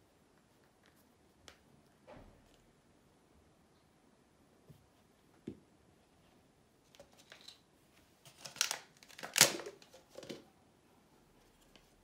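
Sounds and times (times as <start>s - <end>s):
plastic crinkling and rustling: 8.2s - 10.5s.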